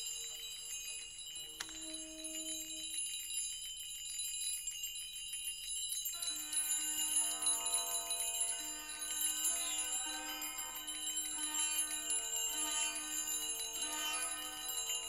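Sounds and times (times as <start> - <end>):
lower bell tones: 0.0 - 4.1, 5.8 - 15.0
small bells and chimes ringing: 0.0 - 15.0
high shimmer: 6.2 - 15.0.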